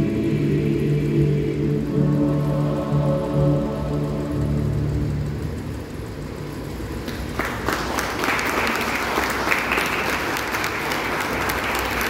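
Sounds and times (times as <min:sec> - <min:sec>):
audience applauding: 0:07.0 - 0:12.0.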